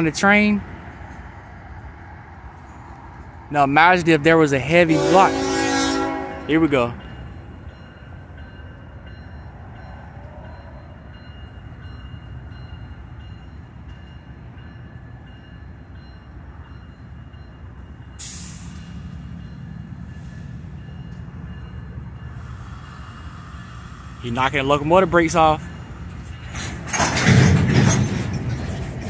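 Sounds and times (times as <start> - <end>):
diesel locomotive rumble: 0.0 - 29.0
air brake hiss: 18.2 - 19.0.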